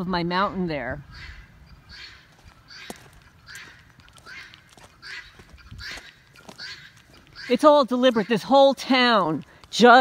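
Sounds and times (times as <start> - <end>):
footsteps crunching on gravel: 2.1 - 10.0.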